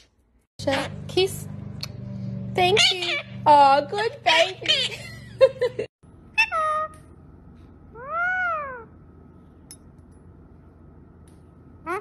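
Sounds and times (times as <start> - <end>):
parakeet meowing: 2.7 - 3.4, 6.4 - 7.0, 7.9 - 9.0.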